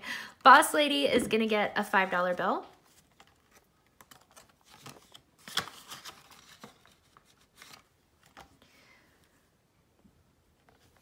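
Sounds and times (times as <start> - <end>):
paper and plastic rustling: 2.7 - 8.6.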